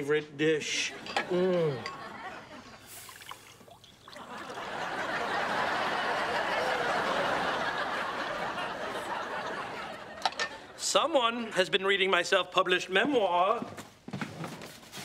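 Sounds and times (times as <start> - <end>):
studio audience laughing: 1.8 - 2.9, 4.1 - 10.8.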